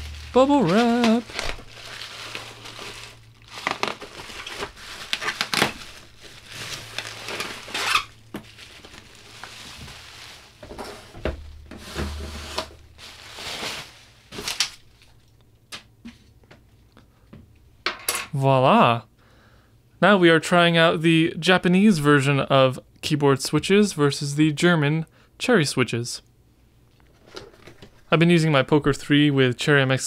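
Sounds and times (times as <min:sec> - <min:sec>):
bubble wrap crinkling: 0:00.0 - 0:15.4.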